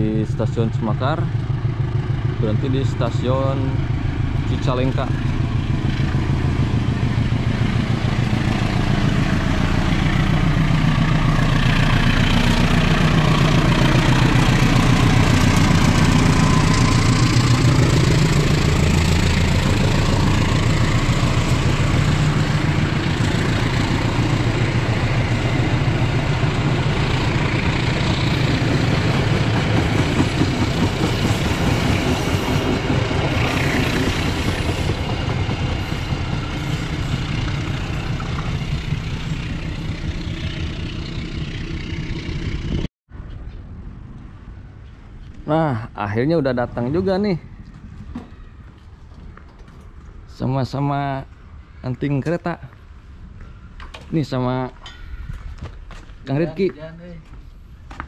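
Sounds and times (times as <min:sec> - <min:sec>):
train wheels rumbling on rails: 0:00.0 - 0:42.9
low train engine drone: 0:00.0 - 0:58.0.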